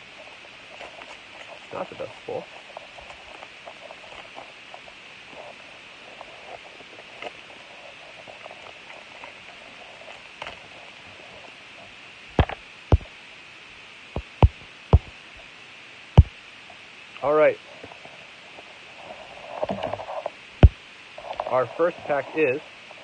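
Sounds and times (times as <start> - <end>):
sharp knocks: 14.2 - 15.1.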